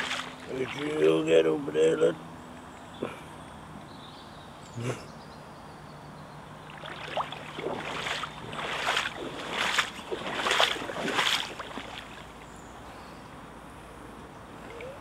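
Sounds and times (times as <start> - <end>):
footsteps splashing in water: 0.0 - 0.8, 6.6 - 12.5.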